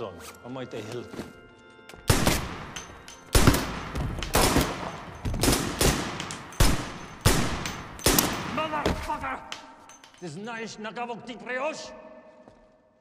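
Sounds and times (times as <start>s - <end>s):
gunshots echoing in a hall: 2.1s - 9.7s.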